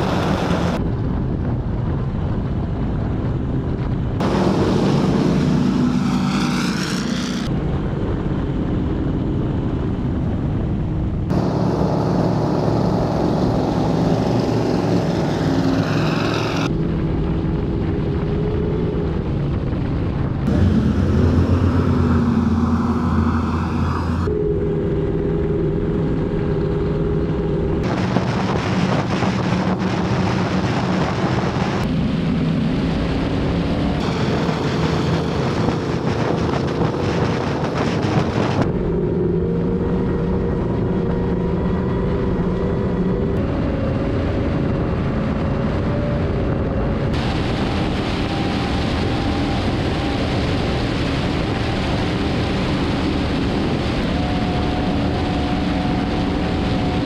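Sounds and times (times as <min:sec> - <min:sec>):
powerboat engines running hard: 0:00.0 - 0:57.0
wind buffeting microphone: 0:00.0 - 0:57.0
water rushing past hull: 0:26.8 - 0:40.5, 0:47.1 - 0:57.0.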